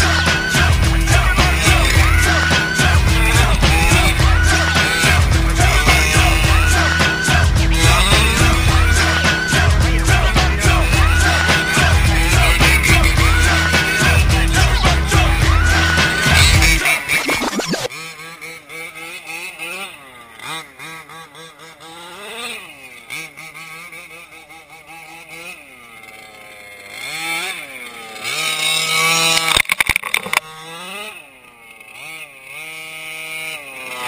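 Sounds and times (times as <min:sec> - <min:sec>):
tires on gravel: 0:00.0 - 0:17.2, 0:17.8 - 0:34.0
two-stroke engine revving: 0:00.0 - 0:34.0.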